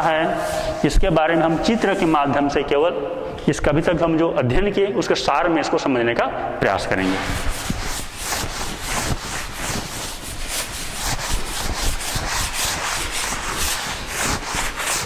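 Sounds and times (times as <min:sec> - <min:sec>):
duster rubbing chalk blackboard: 0:00.0 - 0:02.5, 0:06.9 - 0:15.0.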